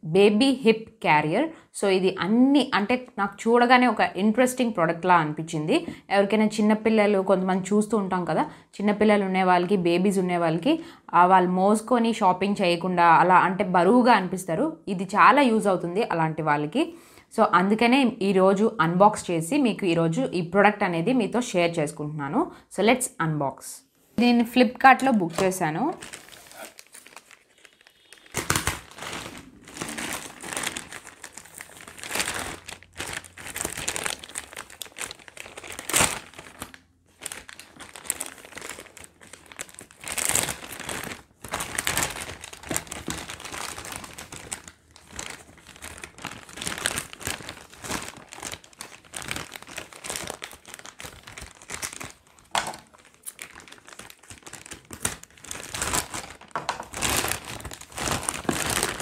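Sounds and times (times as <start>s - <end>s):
plastic mailer bag crinkling: 25.2s - 59.0s.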